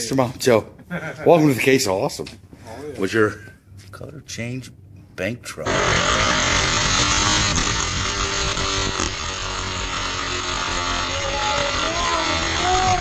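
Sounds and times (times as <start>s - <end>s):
toy trucks rolling on plastic track: 5.7s - 13.0s.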